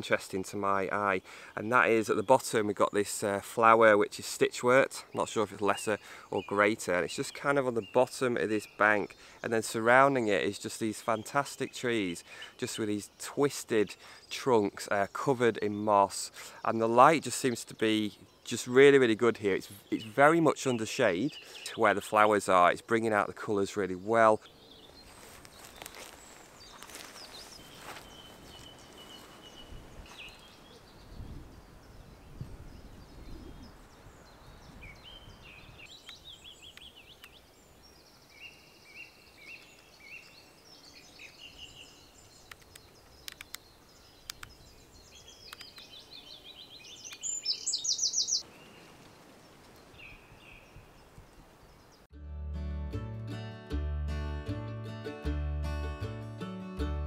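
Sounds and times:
songbirds singing: 0.0s - 52.1s.

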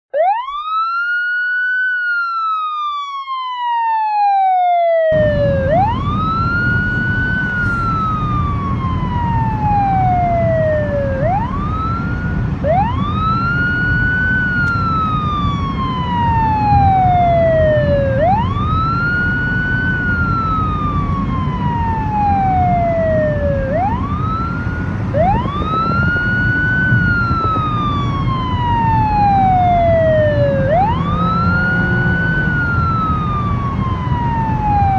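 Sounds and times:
siren wailing: 0.1s - 34.9s
car road noise rumble: 5.1s - 34.9s.

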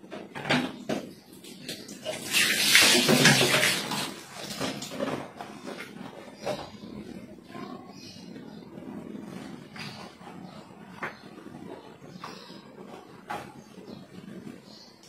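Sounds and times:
water splashing and pouring: 1.5s - 5.1s.

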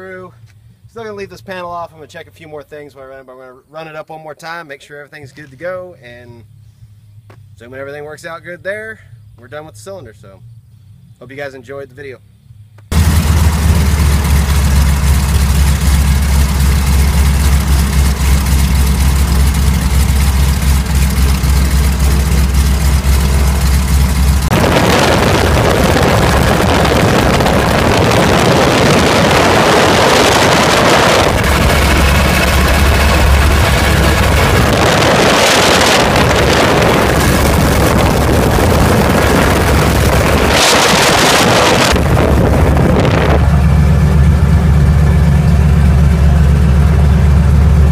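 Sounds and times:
radial aircraft engine running: 12.9s - 47.9s
wind noise on microphone: 24.3s - 43.8s.

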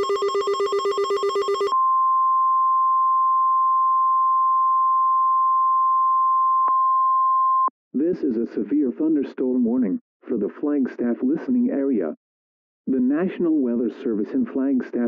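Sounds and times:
rapid electronic alert beeping: 0.0s - 1.8s
steady warning alarm tone: 0.0s - 1.8s.

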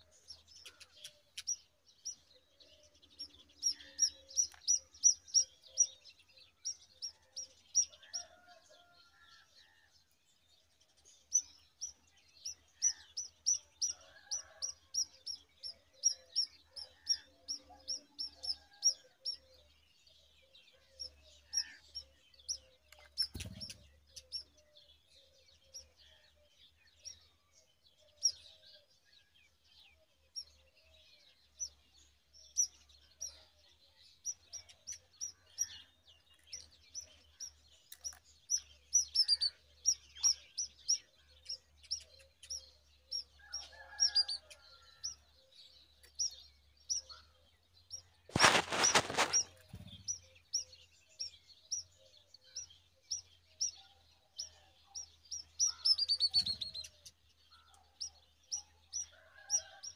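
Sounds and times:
birds chirping at nest: 0.0s - 7.1s, 47.8s - 52.0s, 55.0s - 57.7s.

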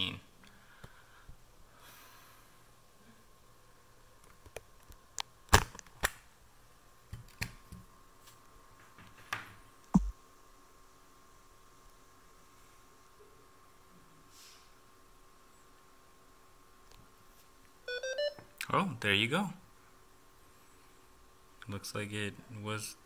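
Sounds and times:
faint steady high tone: 17.9s - 18.6s.

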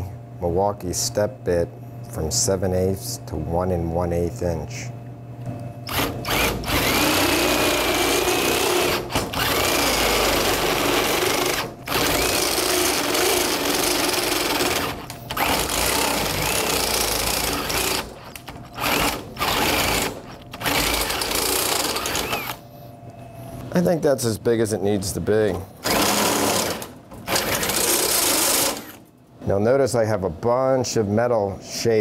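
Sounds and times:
drill boring through sheet steel: 5.9s - 22.6s, 25.8s - 29.0s.

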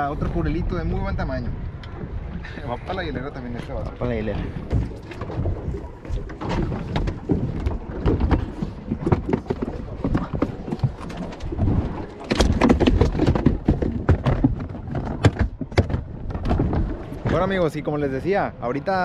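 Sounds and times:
fish thrashing in ice chest: 6.5s - 16.9s.

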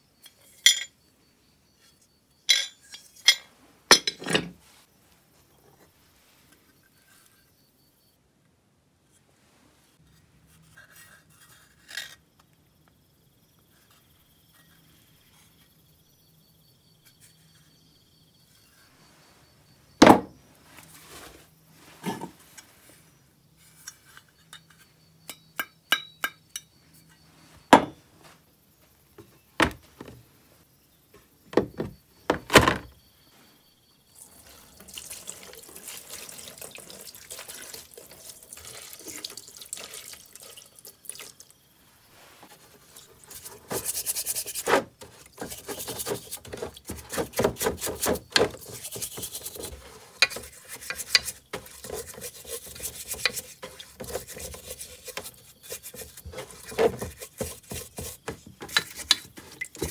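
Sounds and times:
parts knocking on workbench: 20.0s - 20.4s, 27.7s - 28.0s, 29.6s - 30.2s, 31.5s - 32.9s
liquid pouring into plastic tub: 34.3s - 41.4s
paintbrush scrubbing and splashing: 42.6s - 59.9s.

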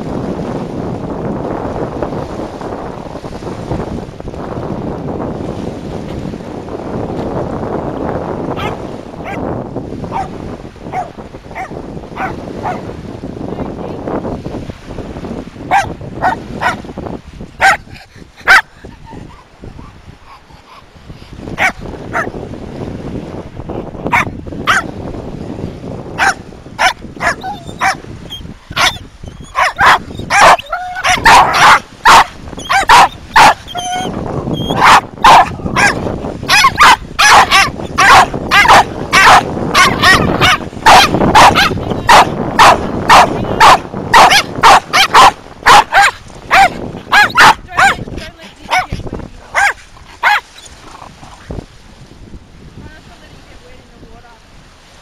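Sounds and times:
dog barking: 8.6s - 9.4s, 10.1s - 12.9s, 15.7s - 16.8s, 17.6s - 18.7s, 21.6s - 22.3s, 24.1s - 24.9s, 26.2s - 28.0s, 28.8s - 48.1s, 48.7s - 50.5s.

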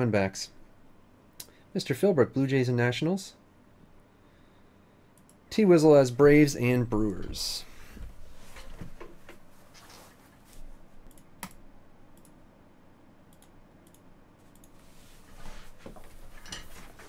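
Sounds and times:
rustling: 8.0s - 11.0s.

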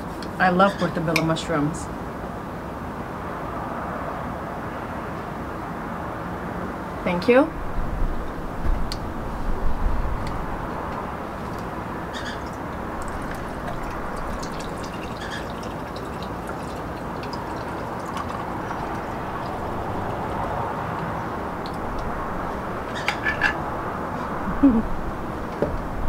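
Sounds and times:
lemonade pouring into glass: 12.1s - 20.6s.

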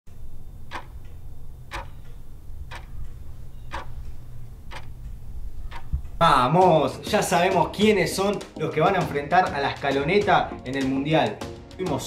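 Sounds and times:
low hum: 0.1s - 6.2s
clock ticking: 0.2s - 10.0s.

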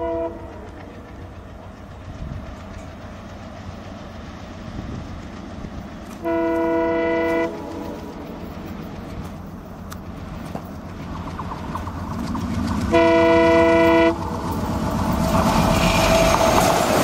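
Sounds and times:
train horn blast: 0.0s - 0.8s, 6.2s - 8.1s, 12.9s - 14.5s
diesel locomotive engine rumbling: 0.0s - 17.0s.

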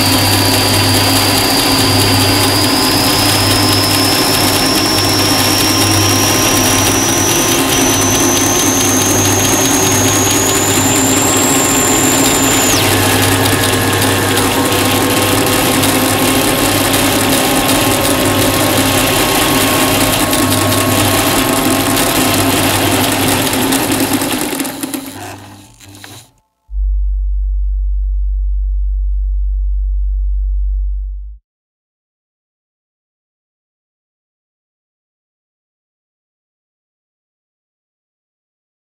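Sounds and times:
high whistle rising: 0.0s - 23.8s
sewing machine running: 0.0s - 26.4s
low tone gliding upward: 1.1s - 23.7s, 26.7s - 31.4s.

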